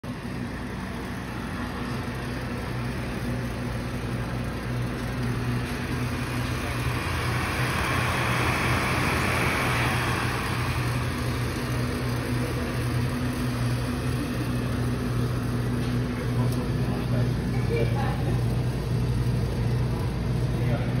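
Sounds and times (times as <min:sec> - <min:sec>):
electric fan motor humming: 0:00.0 - 0:21.0
rushing air: 0:05.8 - 0:12.4.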